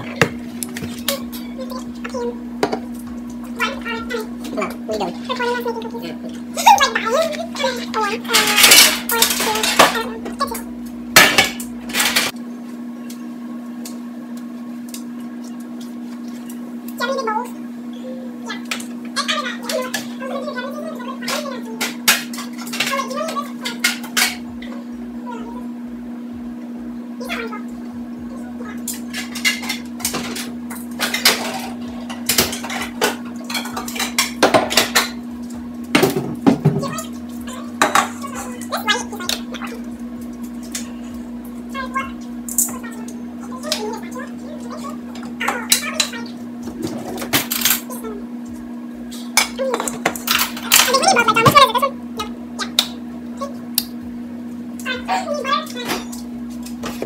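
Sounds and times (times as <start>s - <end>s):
steady low hum: 0.0s - 57.0s
dishes and utensils clattering: 6.6s - 10.2s, 21.3s - 24.5s, 28.9s - 35.2s.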